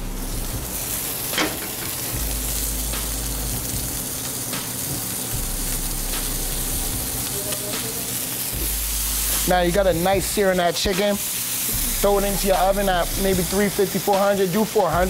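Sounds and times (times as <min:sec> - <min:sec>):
chicken sizzling in a pan: 0:00.0 - 0:15.0
sharp metal clank: 0:01.3 - 0:02.0.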